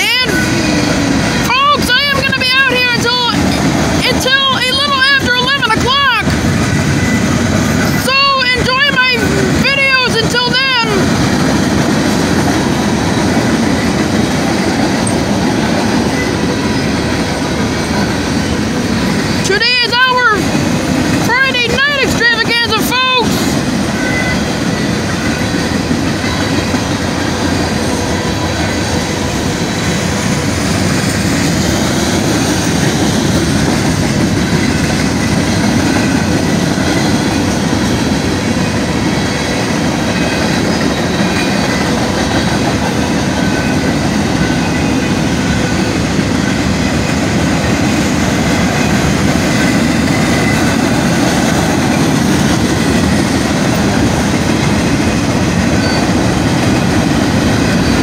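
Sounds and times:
clickety-clack over rail joints: 0.0 - 58.0
train wheels rumbling on rails: 0.0 - 58.0.

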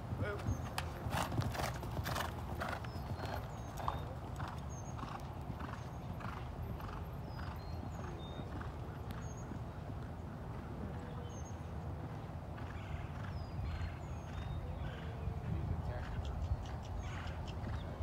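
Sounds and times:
horse hoofbeats on sand: 0.1 - 9.4.

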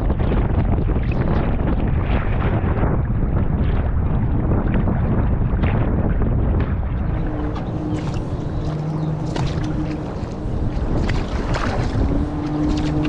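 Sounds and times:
wind buffeting microphone: 0.0 - 13.0
kayak paddle splashes: 6.6 - 13.0.

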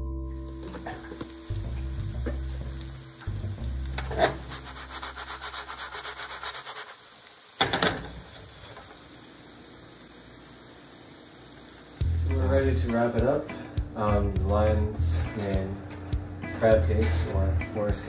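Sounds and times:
faint sizzle of frying: 0.3 - 18.0
spatula scraping a frying pan: 4.0 - 7.1.

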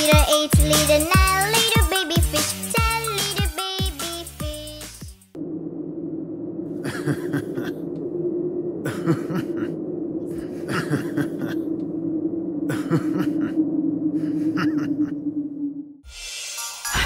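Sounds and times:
low drone: 5.4 - 17.0.

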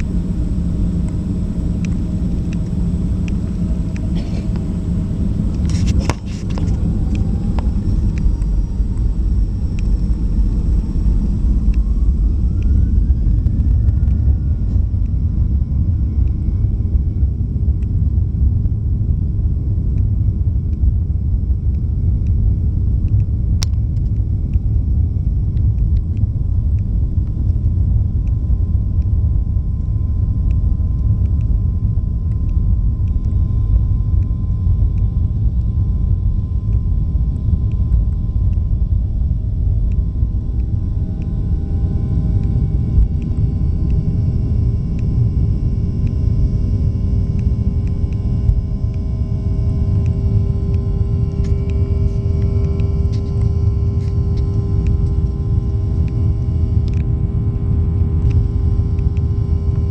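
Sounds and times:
jet engines whining: 0.0 - 16.7, 36.4 - 59.9
steady low rumble: 0.0 - 59.9.

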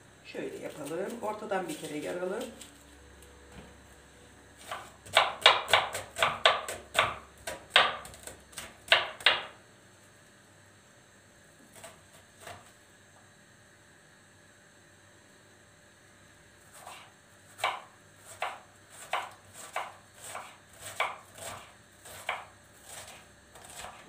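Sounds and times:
knife chopping on plastic board: 4.6 - 9.5, 16.8 - 24.0.

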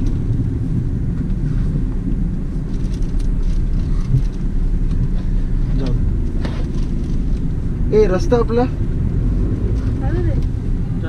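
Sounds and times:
car engine and road rumble: 0.0 - 11.0
faint clicks and rattles: 2.1 - 7.5.

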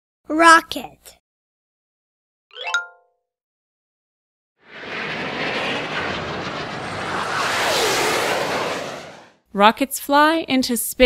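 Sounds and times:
rocket exhaust roar: 4.6 - 9.4.

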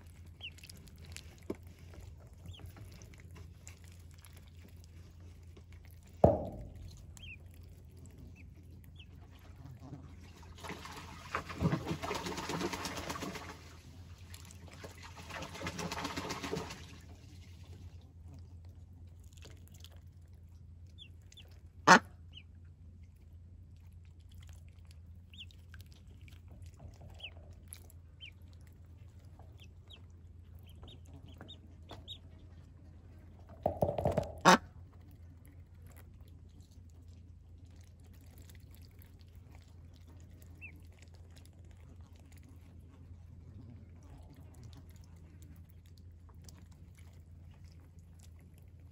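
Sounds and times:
ducklings peeping: 0.0 - 4.4, 6.2 - 10.2, 20.9 - 22.6, 25.1 - 33.4, 34.3 - 35.8, 38.0 - 42.7
sharp knocks: 6.2 - 7.0, 33.6 - 34.6.

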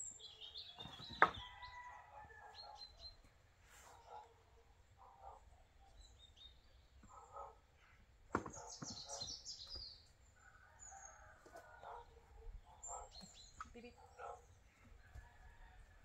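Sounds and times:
wooden boards knocking: 0.8 - 1.4, 8.3 - 9.1.

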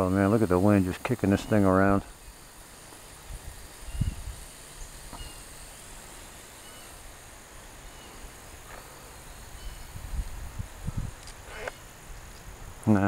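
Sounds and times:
faint high insect hum: 0.0 - 13.0
wind buffeting microphone: 3.2 - 5.4, 9.4 - 12.8.

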